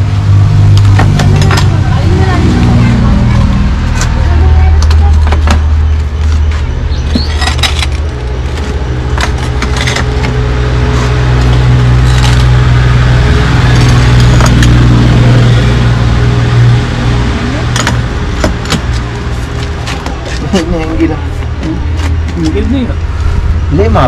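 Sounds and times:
loud steady low hum: 0.0 - 24.0
glass slabs clinking and scraping: 7.1 - 12.5.

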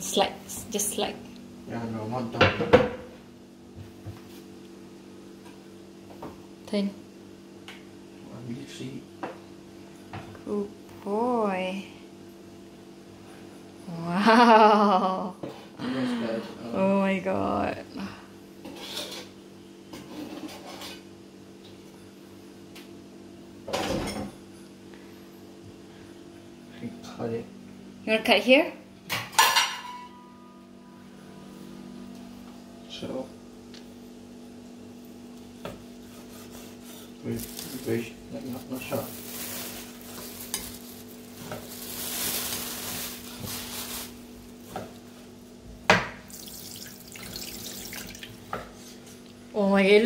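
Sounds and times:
low appliance hum: 0.0 - 50.0
knife sawing through steak: 36.0 - 37.2.

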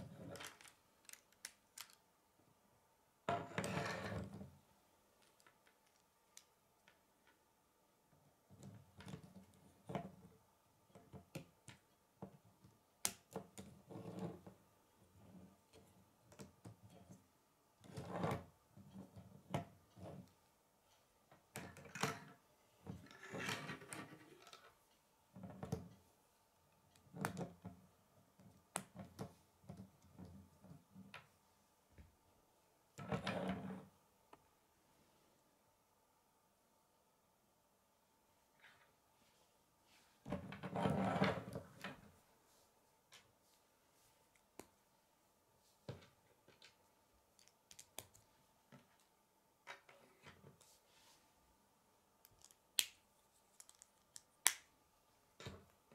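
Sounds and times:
plastic parts clicking: 0.4 - 2.0.

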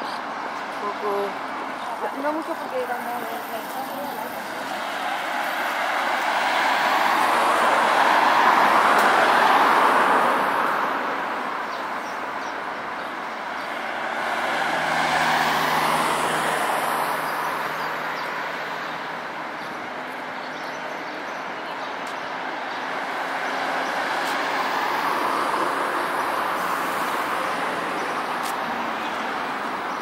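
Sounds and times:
coach engine and tyre noise: 0.0 - 30.0
vehicle passing: 13.4 - 20.4.

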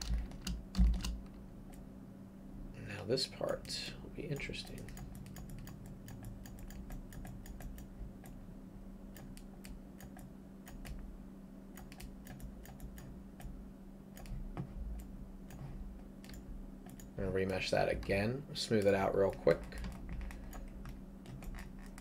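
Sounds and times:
keyboard keystroke clicks: 0.0 - 1.8, 11.8 - 13.6
low steady hum: 0.0 - 22.0.

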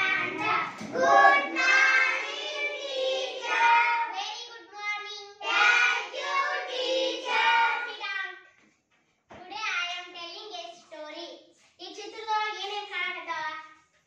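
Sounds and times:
children singing a chant: 0.0 - 4.2, 5.4 - 8.0.

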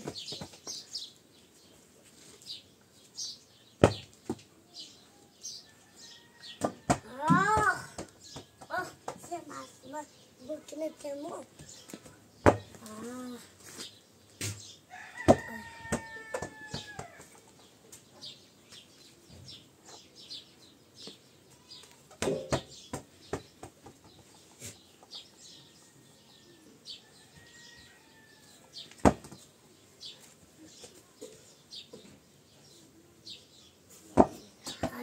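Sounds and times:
small birds chirping: 0.0 - 35.0
ball thudding on packed earth: 3.8 - 4.4, 12.4 - 12.8, 22.2 - 23.8, 29.0 - 29.4, 34.2 - 35.0
rooster crowing: 14.9 - 17.3, 25.6 - 28.7.

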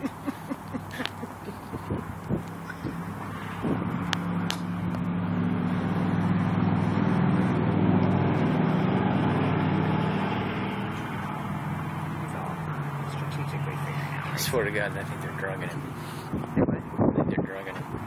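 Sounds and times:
vehicle engine passing: 0.0 - 18.0.

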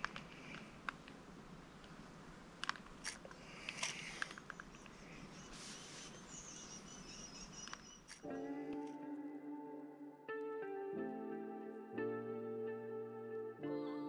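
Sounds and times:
light clicks and rustles of handling: 2.6 - 6.2.

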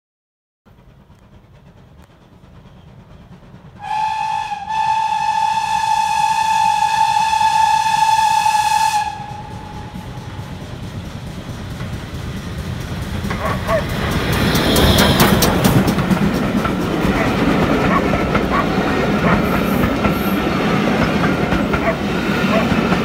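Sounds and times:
low rumble of train: 0.7 - 23.0
steam locomotive whistle: 3.8 - 10.6, 13.6 - 15.8.

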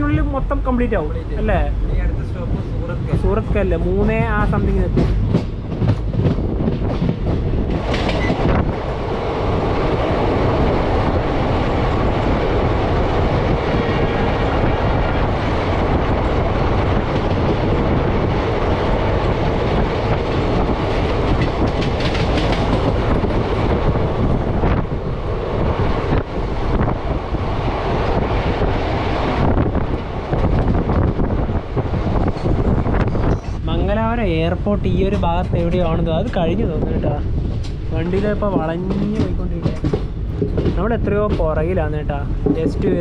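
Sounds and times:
train coaches rumbling: 0.0 - 43.0
wheels clattering over rail joints: 37.5 - 43.0.

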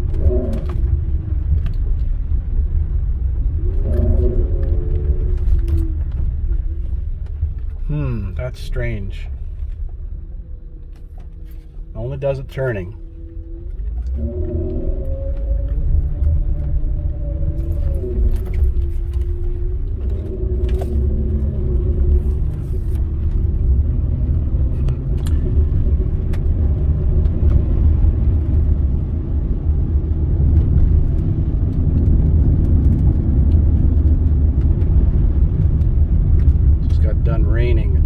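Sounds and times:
car cabin engine and tyre rumble: 0.0 - 38.0.

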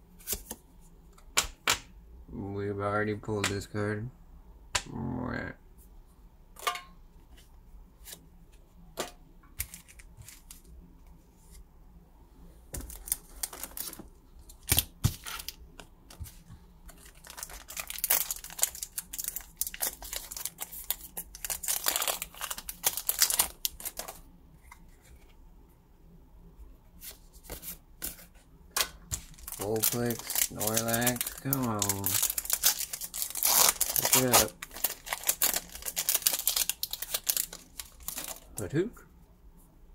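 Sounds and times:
foil wrappers tearing and crinkling: 12.8 - 15.6, 16.9 - 24.2, 29.1 - 38.6.

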